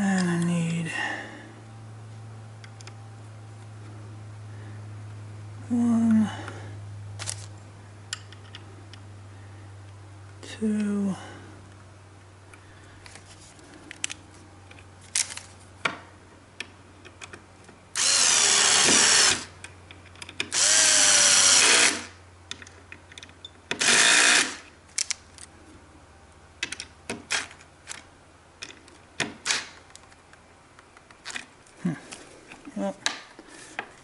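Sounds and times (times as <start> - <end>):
parts being handled clicking: 2.6 - 3.0, 7.2 - 9.1, 12.5 - 18.1, 19.5 - 20.6, 22.4 - 23.9, 24.6 - 25.6, 26.6 - 34.0
cordless drill driving screws: 18.0 - 19.5, 20.5 - 22.1, 23.8 - 24.6.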